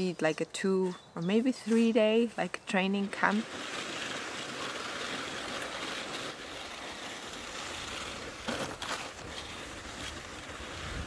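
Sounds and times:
scrape on snow: 1.4 - 11.0
skis hissing over snow: 2.9 - 11.0.

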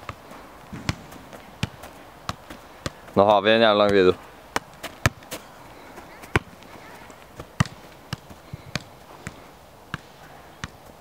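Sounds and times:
football thumping against foot: 0.7 - 3.0, 3.8 - 5.4, 7.4 - 10.1.

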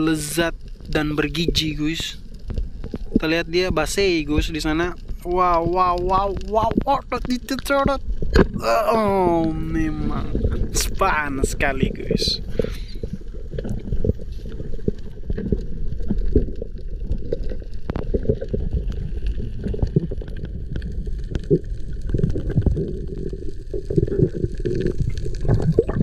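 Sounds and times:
short clicks and crackles: 0.0 - 8.6
underwater rumble of water: 0.0 - 26.0.

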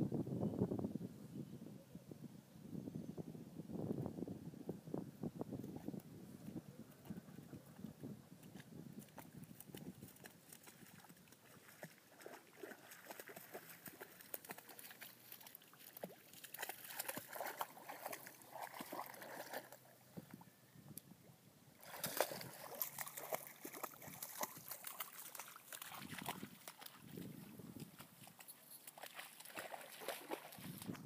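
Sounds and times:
dog splashing through water: 8.5 - 19.9, 21.8 - 31.0.

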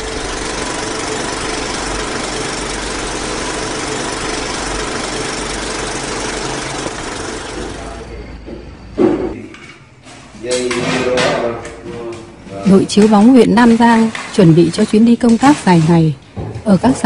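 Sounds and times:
motor whirring: 0.0 - 8.1.

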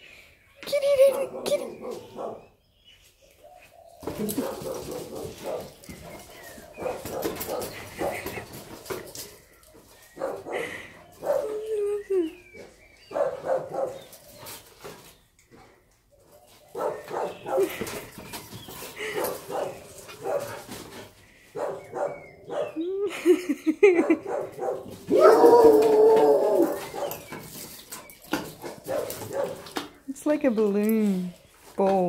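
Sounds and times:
dog barking and whining: 21.6 - 22.9, 24.0 - 27.3.

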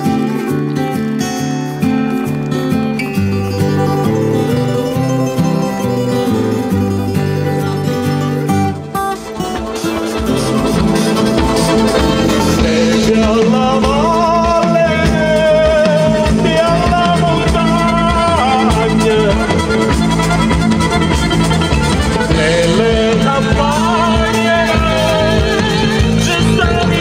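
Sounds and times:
accordion: 0.0 - 27.0
drum kit: 0.0 - 27.0
guitar: 0.0 - 27.0
hand drums: 0.0 - 27.0
women singing: 3.6 - 6.8, 9.9 - 15.6, 22.3 - 27.0.

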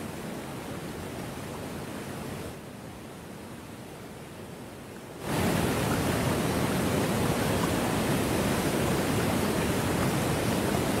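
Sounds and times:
waterfall rushing: 5.2 - 11.0.

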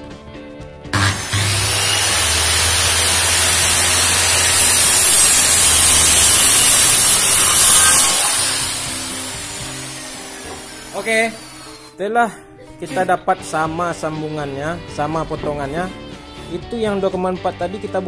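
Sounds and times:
circular saw cutting plywood: 1.0 - 11.9.

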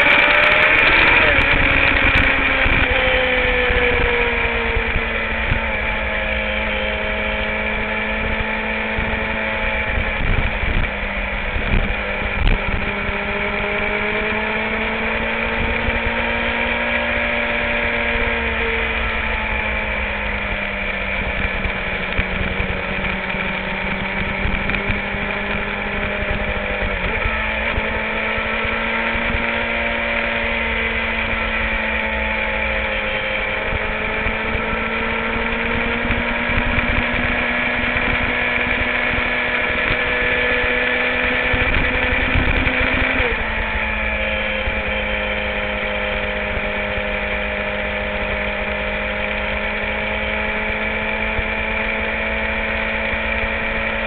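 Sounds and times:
motorcycle engine running: 0.0 - 54.0
wind rumble on microphone: 0.0 - 54.0.

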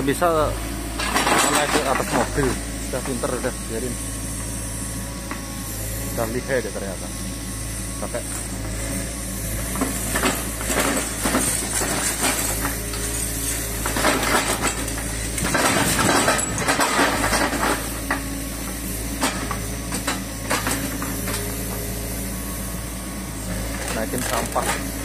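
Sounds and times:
excavator diesel engine running: 0.0 - 25.0
rubbish clinking and clattering: 1.0 - 2.4, 13.7 - 18.2.

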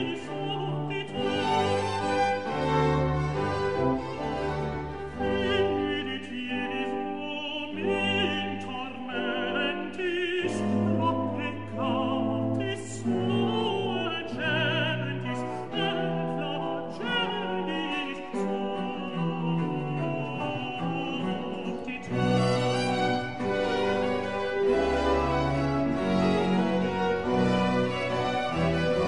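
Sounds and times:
operatic voice singing: 0.0 - 2.2, 5.1 - 25.4
orchestra playing: 0.0 - 29.0.

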